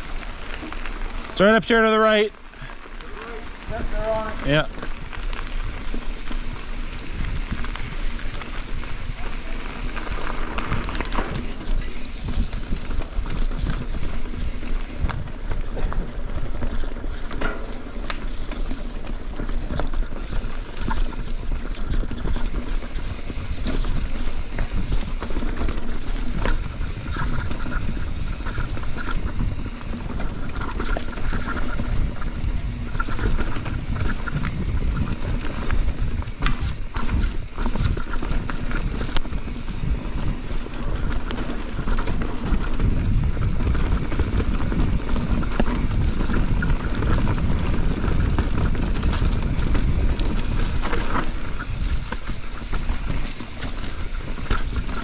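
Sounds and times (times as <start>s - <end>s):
bike rattling and clicking: 0.0s - 55.0s
tyres rolling over rocks: 0.0s - 55.0s
wind rushing over microphone: 3.1s - 16.6s, 20.2s - 55.0s.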